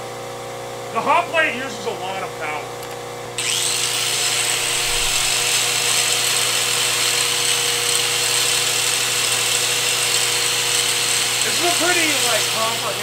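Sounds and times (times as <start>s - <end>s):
angle grinder spinning free: 3.4s - 13.0s.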